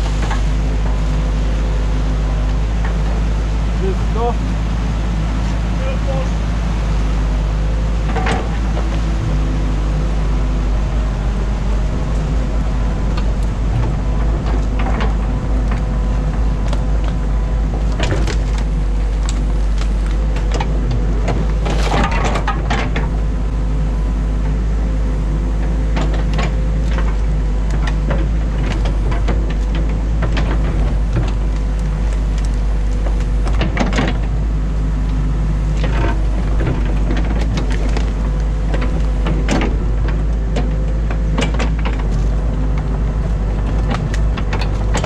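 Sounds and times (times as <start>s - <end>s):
diesel engine running under load: 0.0s - 45.0s.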